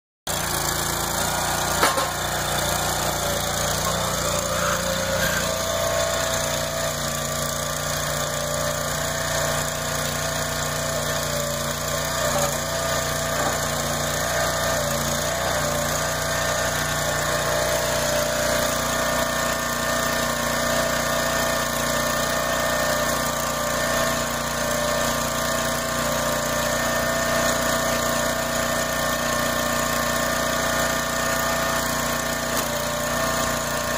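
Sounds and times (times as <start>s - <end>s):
small gasoline engine running: 0.3s - 33.9s.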